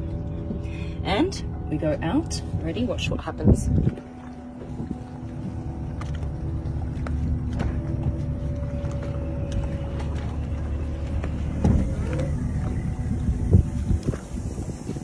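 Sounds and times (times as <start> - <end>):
boat engine humming: 0.0 - 15.0
trim motor whining: 4.0 - 14.4.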